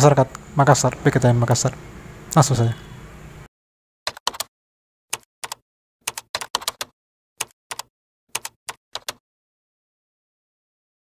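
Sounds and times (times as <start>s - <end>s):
keyboard key clicks: 5.2s - 9.2s.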